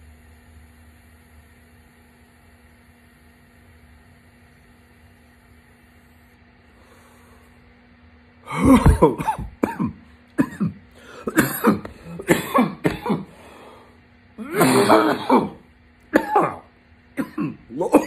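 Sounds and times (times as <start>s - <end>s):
man coughing: 8.5s - 13.6s, 14.4s - 18.0s.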